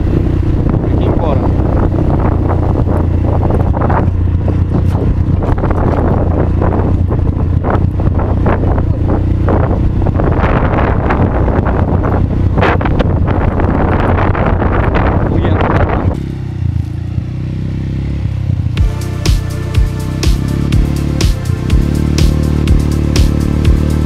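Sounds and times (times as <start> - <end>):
wind buffeting microphone: 0.0 - 17.3
quad bike engine running: 0.0 - 24.0.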